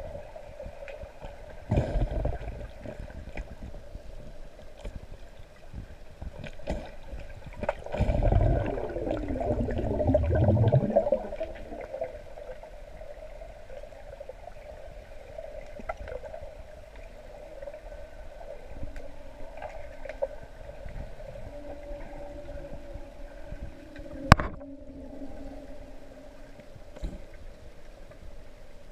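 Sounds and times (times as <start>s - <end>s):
gurgling bubbling water: 7.5s - 16.4s
steady hum: 20.5s - 28.8s.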